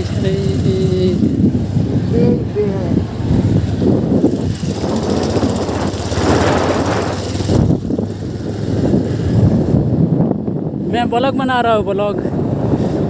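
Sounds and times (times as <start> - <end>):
motorcycle engine running: 0.0 - 2.5, 3.1 - 10.2
road noise: 0.0 - 13.0.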